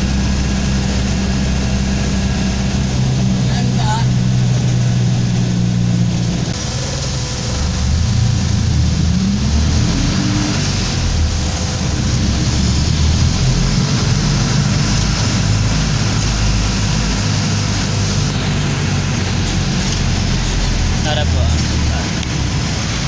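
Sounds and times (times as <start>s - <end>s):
engine rumble and road noise: 0.0s - 23.0s.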